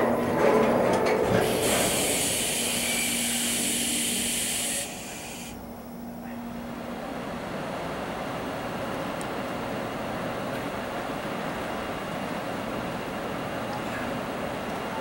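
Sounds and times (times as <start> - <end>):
steady hum: 0.0 - 10.4
air brakes hissing: 1.3 - 5.8.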